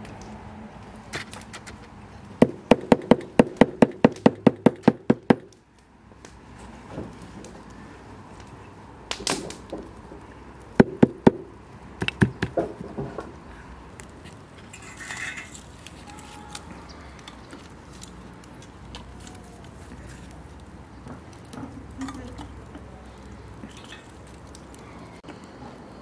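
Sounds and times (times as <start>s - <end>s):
green beans rustling: 13.3s - 25.2s.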